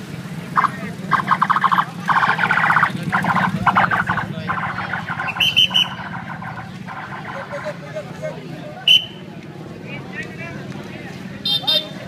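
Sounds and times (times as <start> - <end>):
motorcycle engines humming: 0.0 - 12.0
trilling whistle blasts: 1.2 - 7.6, 8.9 - 9.2.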